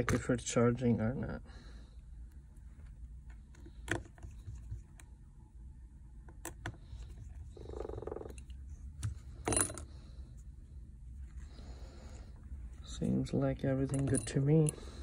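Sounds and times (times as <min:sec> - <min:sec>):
small tools clinking: 0:13.8 - 0:14.9.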